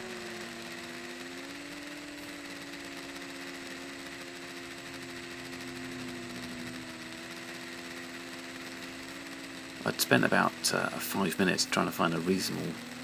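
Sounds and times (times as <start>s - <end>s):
quadcopter motors humming: 0.0s - 13.0s.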